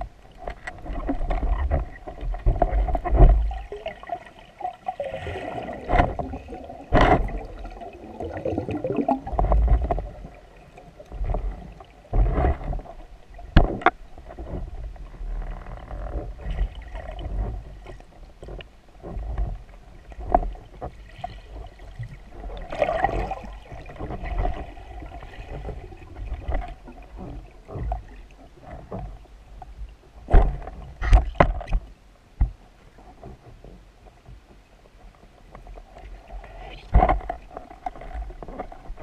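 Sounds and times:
underwater water rush: 0.0 - 29.2.

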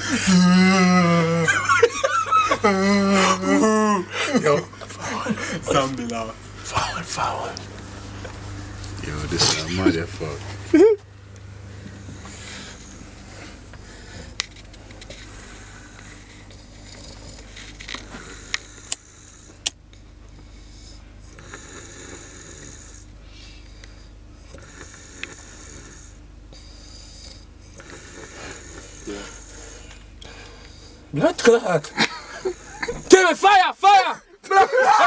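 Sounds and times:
man snoring: 0.0 - 5.4, 11.6 - 14.4, 15.0 - 19.8, 20.5 - 23.7, 24.4 - 31.1, 32.2 - 33.1.

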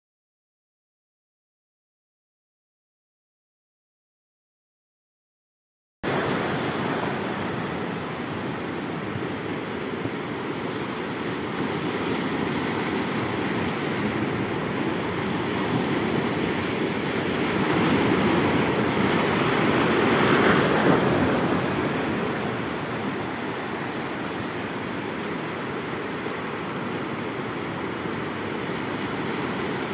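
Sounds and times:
sea surf washing over rocks: 6.1 - 29.9.

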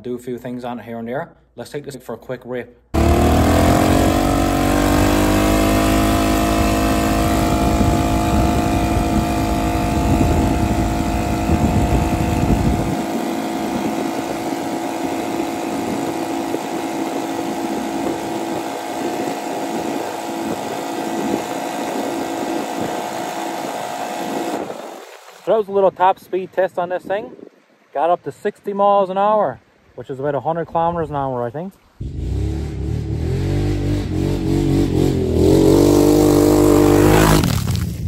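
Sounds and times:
atv engine at full throttle: 3.0 - 25.4, 32.0 - 37.6
low rumble: 5.7 - 14.4.

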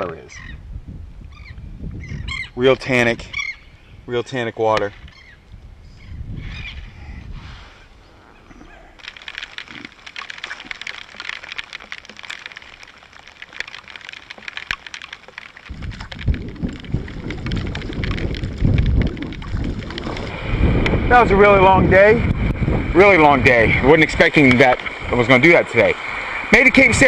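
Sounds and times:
rain on water and hood: 8.0 - 27.0.

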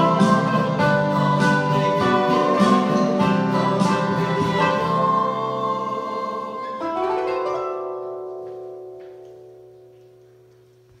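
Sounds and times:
plucked-string chord ringing: 0.0 - 10.8.

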